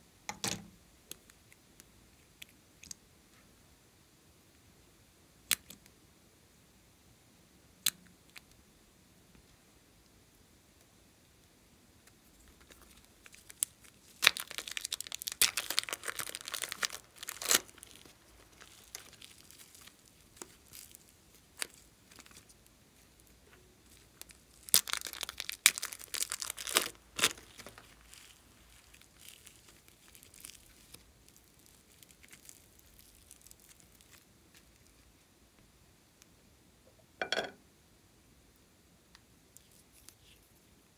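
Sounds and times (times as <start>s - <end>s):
plastic bags crinkling and tearing: 12.5s - 35.0s.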